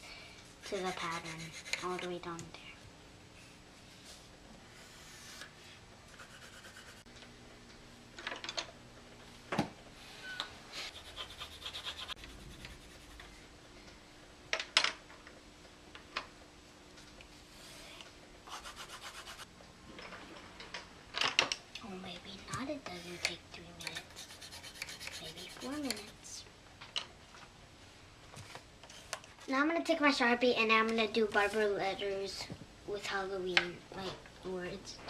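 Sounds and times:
marker scratching on paper: 0.7s - 2.1s, 6.1s - 7.0s, 10.9s - 13.2s, 18.5s - 19.4s, 23.9s - 26.2s.

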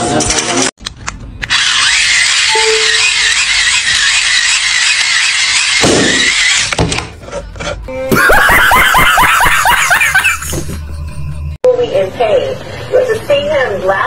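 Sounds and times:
hand-crank charger whirring: 1.4s - 6.8s
man shrieking with laughter: 8.1s - 10.4s.

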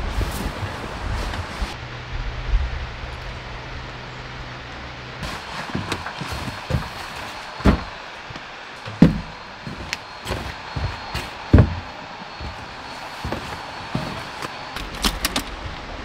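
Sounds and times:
heavy thumps: 5.2s - 14.6s
footsteps on wooden deck: 5.2s - 14.9s.

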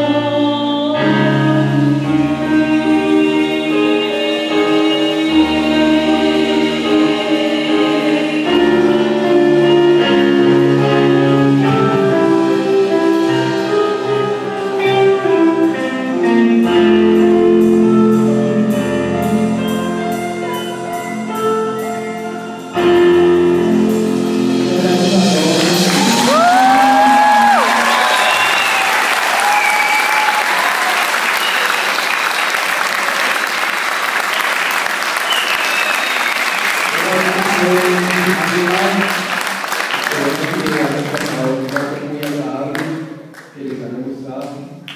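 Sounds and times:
woman singing: 0.0s - 9.2s, 23.6s - 27.6s
live rock band playing: 1.0s - 28.9s
audience cheering: 25.7s - 41.6s.

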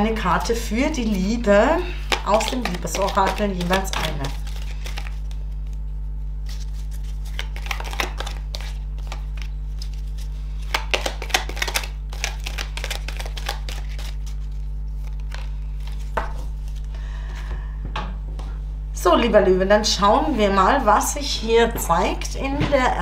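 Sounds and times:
low hum: 0.0s - 23.0s
cards flicking and snapping: 2.1s - 5.8s, 6.5s - 16.8s.

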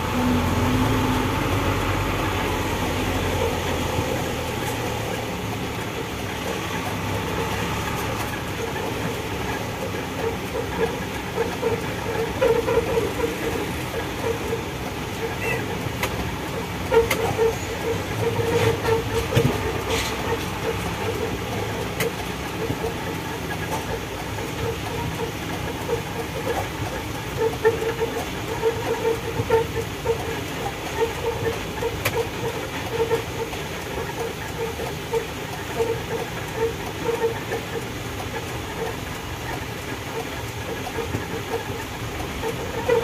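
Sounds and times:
diesel truck engine rumbling: 0.0s - 43.0s.

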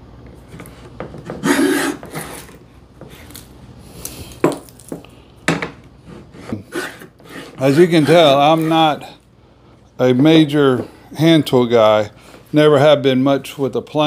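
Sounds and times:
plane blade scraping wood: 1.2s - 2.6s, 6.0s - 9.1s.

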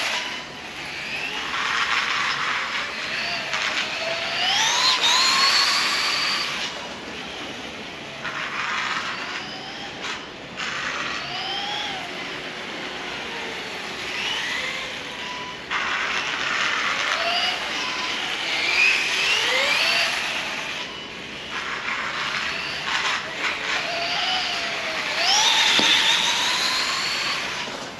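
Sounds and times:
electric motor whining: 0.0s - 7.4s, 13.0s - 27.9s.

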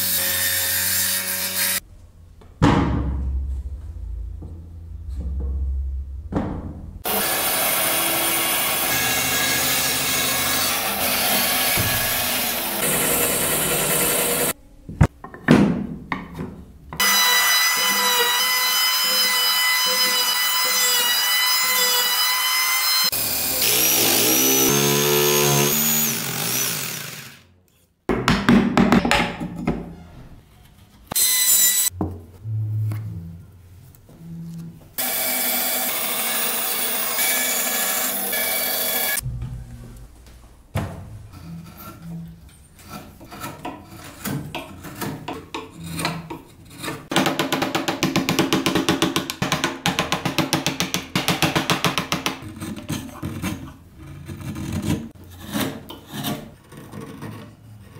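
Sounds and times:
electric hand planer whining: 7.1s - 14.5s.

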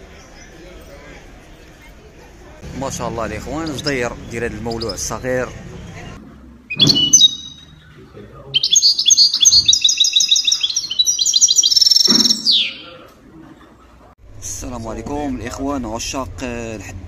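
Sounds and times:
songbird chirping: 0.0s - 2.0s, 3.3s - 14.0s.

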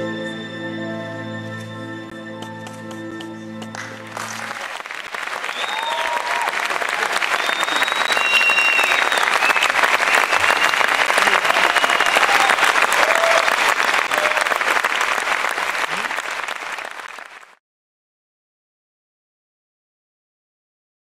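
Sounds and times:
audience applauding: 3.7s - 17.6s.

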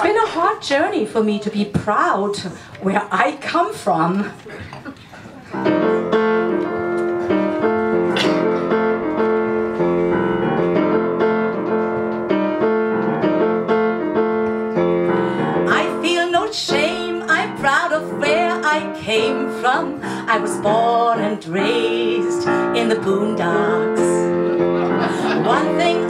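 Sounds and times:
piano playing repeated chords: 5.6s - 26.0s
woman singing: 15.6s - 24.3s, 25.2s - 26.0s.

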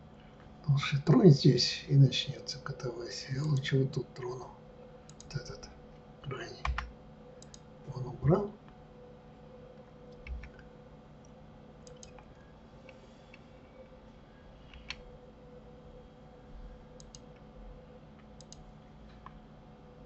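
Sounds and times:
steady low hum: 0.0s - 20.0s
mouse and keyboard clicks: 11.8s - 12.3s.

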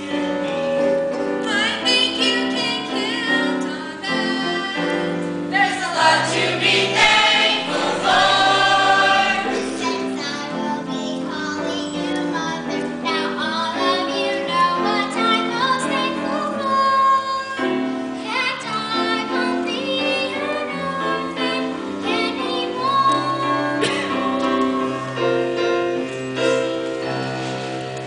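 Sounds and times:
piano accompaniment: 0.0s - 28.0s
young voices singing: 5.5s - 17.2s.

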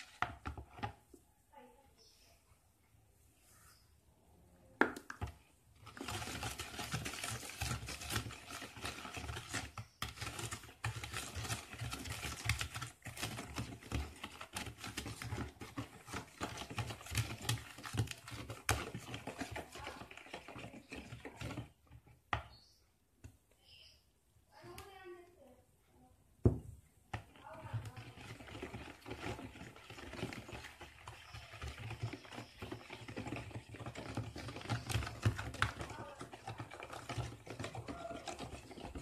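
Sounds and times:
whisk beating eggs in bowl: 0.0s - 1.0s, 5.2s - 22.5s, 27.1s - 39.0s.

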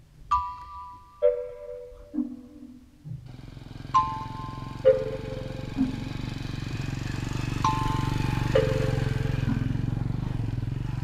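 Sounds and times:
diesel engine rumbling: 0.0s - 11.0s
ringing music notes: 0.3s - 3.0s, 3.8s - 6.2s, 7.5s - 9.6s.

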